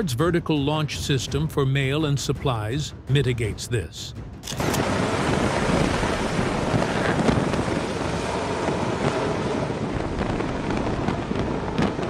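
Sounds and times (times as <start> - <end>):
jet engines at full thrust: 4.4 - 12.0.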